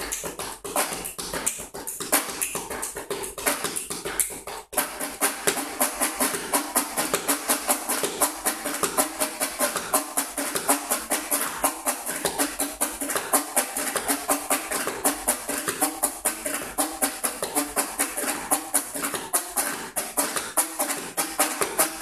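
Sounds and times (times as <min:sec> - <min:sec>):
fast hand percussion: 0:00.0 - 0:22.0.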